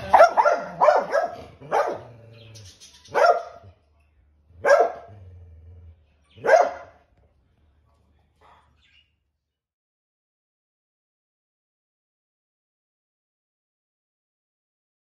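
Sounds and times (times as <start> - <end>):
dog barking: 0.0 - 2.2, 3.1 - 3.8, 4.6 - 5.2, 6.3 - 7.0
dog growling: 0.0 - 2.8, 4.5 - 6.5.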